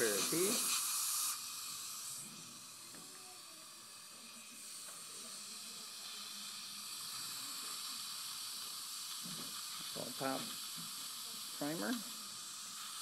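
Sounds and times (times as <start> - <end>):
dental suction hissing: 0.0 - 13.0.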